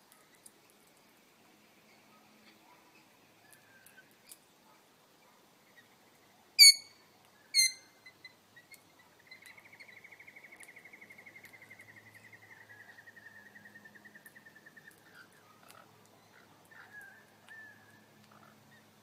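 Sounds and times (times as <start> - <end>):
fast bird trill: 6.6 - 6.9, 7.6 - 7.9
shrill parrot calls: 6.6 - 8.2.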